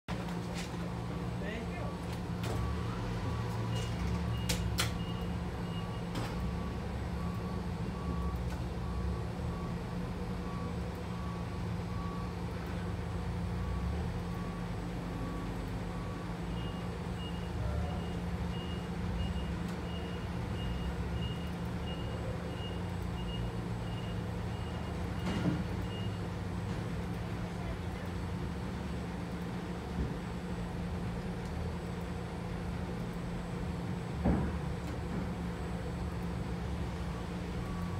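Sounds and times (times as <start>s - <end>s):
low machinery hum: 0.1s - 37.9s
electronic warning beeps: 1.7s - 9.8s, 13.6s - 26.3s.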